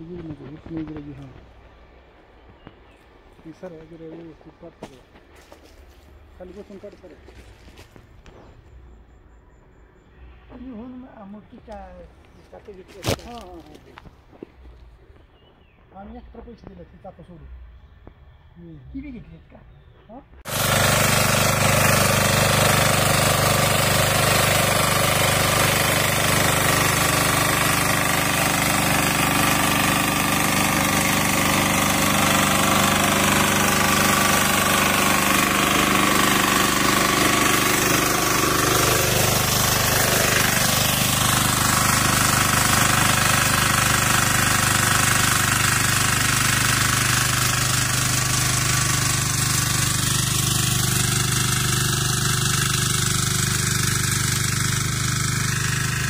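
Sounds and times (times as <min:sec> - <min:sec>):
tines churning soil: 0:11.7 - 0:14.0, 0:20.4 - 0:56.0
power tiller engine running: 0:20.4 - 0:56.0.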